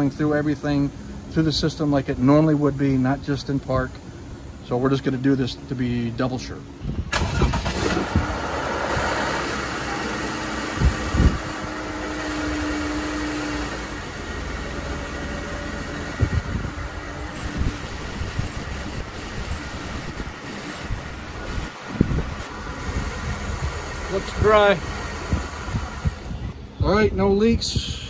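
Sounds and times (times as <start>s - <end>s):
car engine idling: 7.1s - 27.0s.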